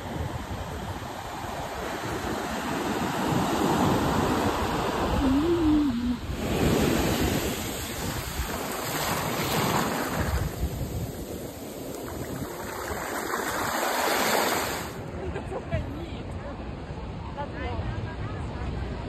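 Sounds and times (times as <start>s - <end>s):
wind buffeting microphone: 0.0s - 13.9s
ocean surf washing ashore: 0.0s - 19.0s.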